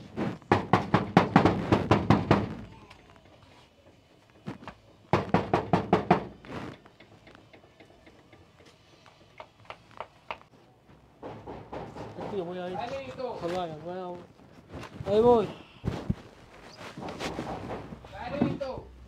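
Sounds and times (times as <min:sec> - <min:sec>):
fist knocking on door: 0:00.5 - 0:02.7, 0:05.1 - 0:06.4, 0:11.2 - 0:12.6.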